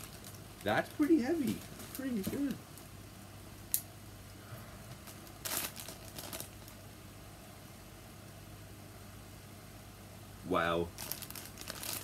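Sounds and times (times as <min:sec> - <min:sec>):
plastic bag crinkling: 0:00.0 - 0:02.9, 0:04.9 - 0:06.8, 0:10.9 - 0:12.0.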